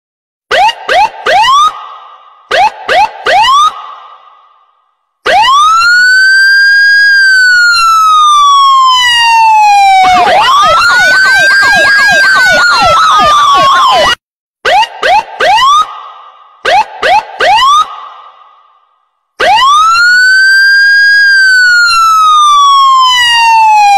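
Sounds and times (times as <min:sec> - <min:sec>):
electronic siren wailing: 0:00.5 - 0:01.8, 0:02.5 - 0:03.8, 0:05.3 - 0:15.9, 0:16.6 - 0:17.9, 0:19.4 - 0:23.9
fast siren yelp: 0:00.5 - 0:01.8, 0:02.5 - 0:03.9, 0:05.2 - 0:16.0, 0:16.6 - 0:18.1, 0:19.4 - 0:23.9
siren chirp: 0:00.5 - 0:01.8, 0:02.5 - 0:03.8, 0:05.3 - 0:16.0, 0:16.6 - 0:18.1, 0:19.4 - 0:23.9.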